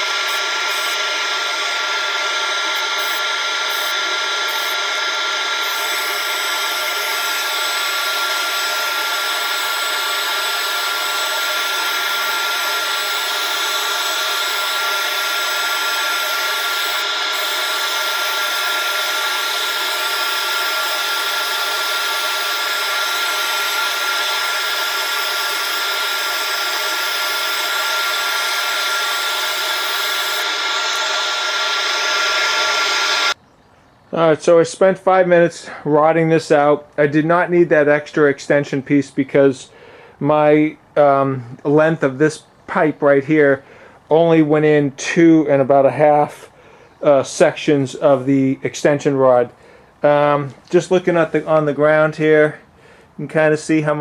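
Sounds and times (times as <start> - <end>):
rushing air: 0.0 - 33.4
shop vac whine: 0.0 - 33.4, 34.1 - 54.0.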